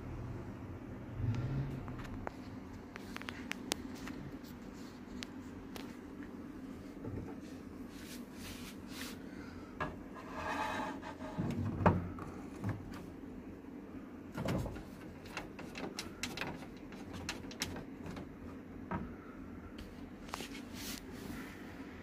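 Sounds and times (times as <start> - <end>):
plastic parts clicking and knocking: 14.4 - 19.1.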